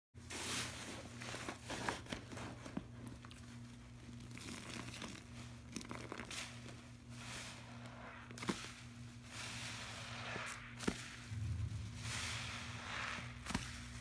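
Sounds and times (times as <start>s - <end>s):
wet sponges squeezed in foam: 4.1s - 11.3s.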